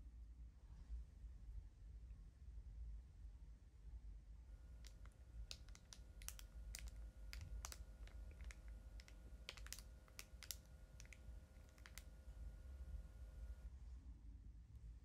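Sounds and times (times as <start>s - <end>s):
plastic piping bag clicks and crackles: 4.6s - 13.6s.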